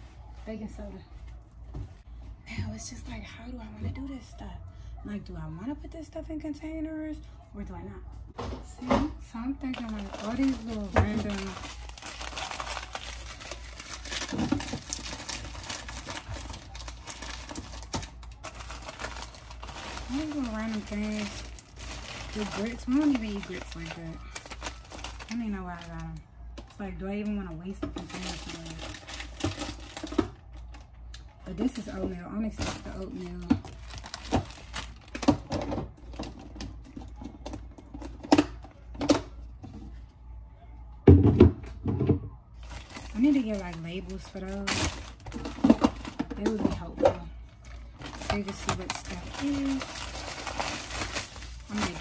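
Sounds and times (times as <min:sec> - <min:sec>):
low steady hum: 0:00.0 - 0:52.0
packaging rustling: 0:09.6 - 0:26.7, 0:28.0 - 0:30.9, 0:32.6 - 0:35.4, 0:42.6 - 0:46.3, 0:47.5 - 0:52.0.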